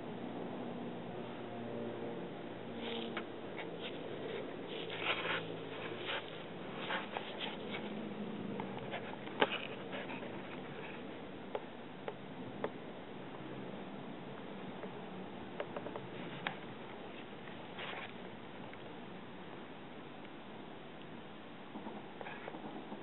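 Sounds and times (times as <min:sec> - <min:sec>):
soft rustling: 0:02.8 - 0:11.3, 0:15.9 - 0:18.9.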